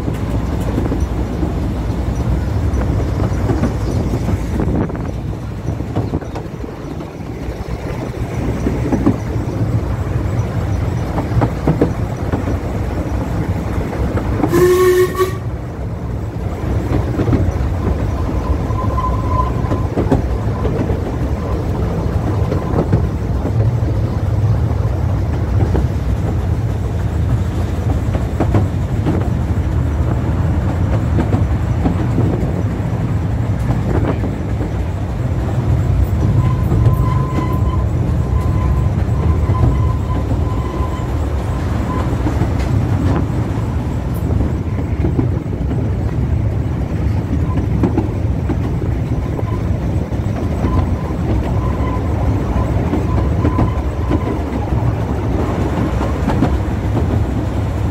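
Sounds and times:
train rumbling: 0:00.0 - 0:57.9
train whistle blast: 0:14.5 - 0:15.5.

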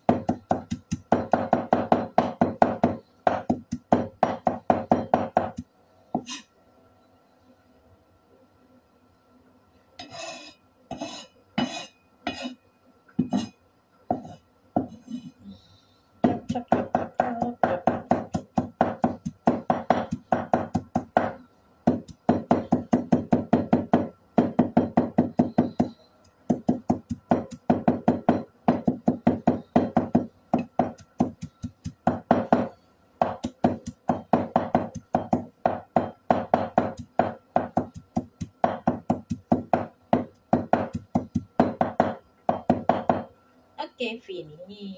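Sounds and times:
cleaver chopping on wooden board: 0:26.5 - 0:43.3.

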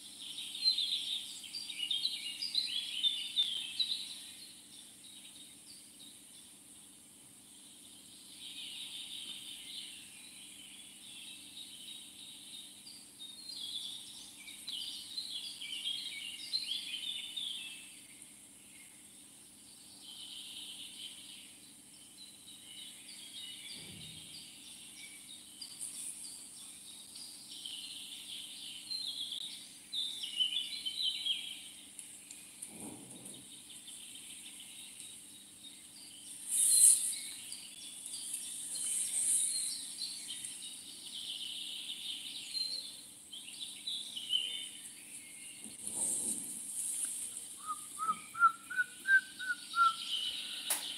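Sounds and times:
birds chirping: 0:19.9 - 0:50.9.

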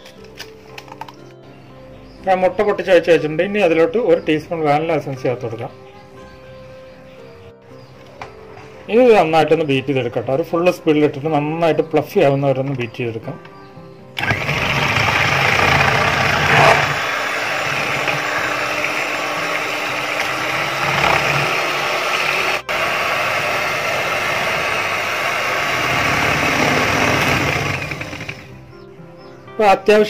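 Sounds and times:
electric hand mixer running: 0:14.2 - 0:28.6.

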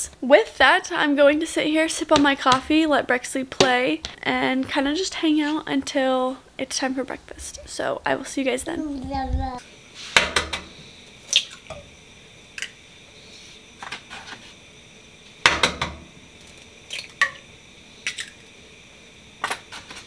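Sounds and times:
eggs cracking on a pan: 0:01.8 - 0:04.2, 0:15.4 - 0:18.5.

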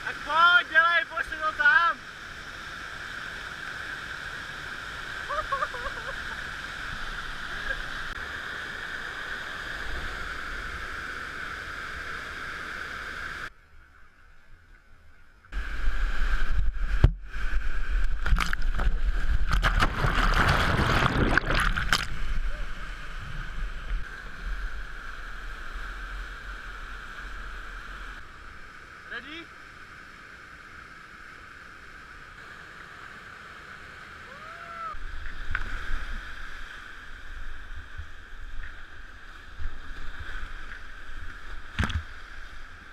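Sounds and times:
water churning and splashing: 0:15.8 - 0:24.6.

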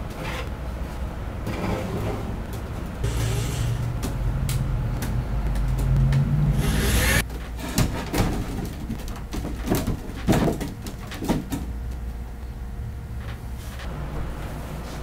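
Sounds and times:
shelf panels knocking and clunking: 0:07.3 - 0:11.7.

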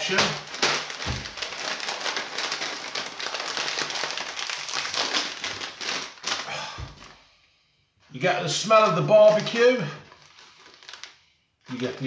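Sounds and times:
plastic packaging crinkling: 0:00.0 - 0:07.2, 0:08.4 - 0:12.0.

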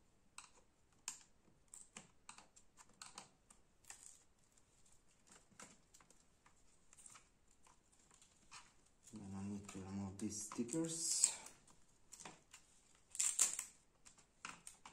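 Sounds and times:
plastic laptop keys clicking: 0:00.4 - 0:04.2, 0:10.4 - 0:14.9.

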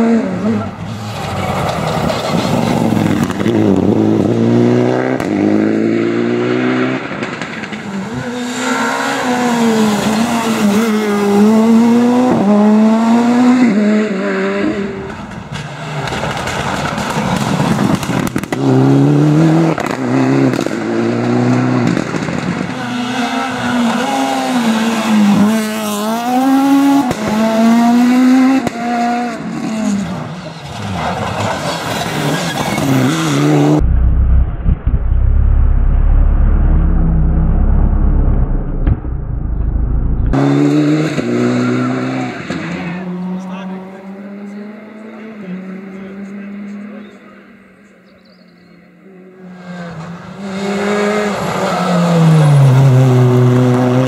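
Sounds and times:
rally car engines revving: 0:00.0 - 0:54.0
heavy low rumble: 0:33.7 - 0:40.4.

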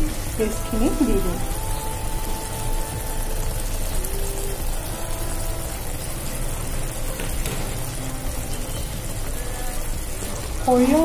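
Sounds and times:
food sizzling in a pan: 0:00.0 - 0:11.0.

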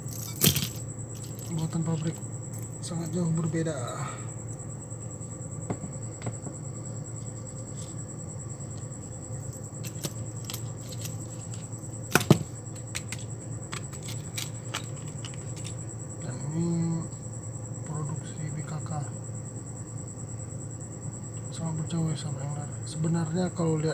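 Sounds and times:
steady low hum: 0:00.0 - 0:23.9
knock on wooden table: 0:05.7 - 0:06.6.

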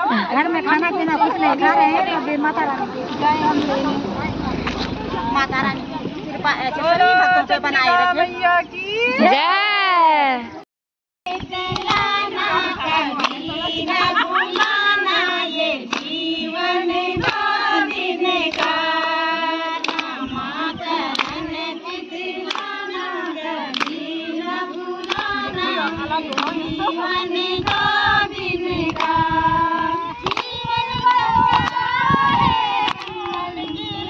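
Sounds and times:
women singing in unison: 0:11.3 - 0:34.0
hands clapping to a beat: 0:11.5 - 0:12.2, 0:13.1 - 0:15.0, 0:15.8 - 0:16.2, 0:17.2 - 0:17.5, 0:18.4 - 0:18.8, 0:19.8 - 0:20.2, 0:21.0 - 0:21.4, 0:22.4 - 0:22.8, 0:23.6 - 0:24.1, 0:24.7 - 0:26.8, 0:27.6 - 0:27.8, 0:28.8 - 0:29.2, 0:30.2 - 0:31.9, 0:32.8 - 0:33.8.

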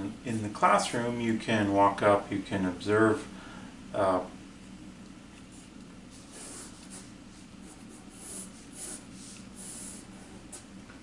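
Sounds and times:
pencil scratching on paper: 0:06.1 - 0:10.4.

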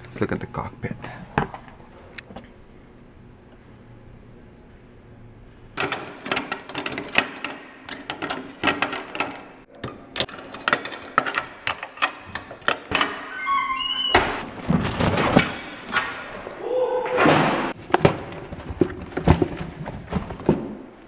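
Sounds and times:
lock rattling and thumping: 0:05.8 - 0:16.3
metal locker door opening: 0:05.8 - 0:16.4, 0:17.1 - 0:17.8.

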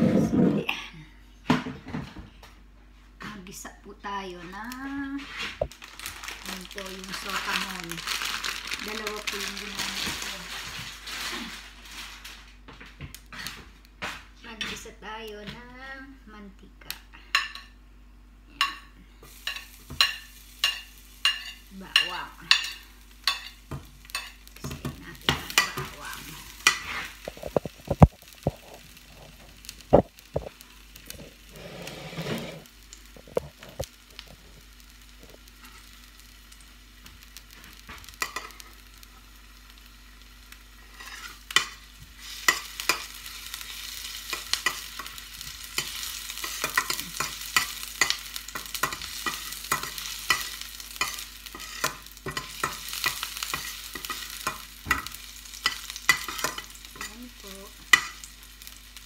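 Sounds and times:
garlic sizzling in oil: 0:04.5 - 0:12.4, 0:18.5 - 0:59.0
metal spoon scraping a pan: 0:19.5 - 0:24.4, 0:26.6 - 0:27.7, 0:31.5 - 0:32.7, 0:40.8 - 0:57.2.

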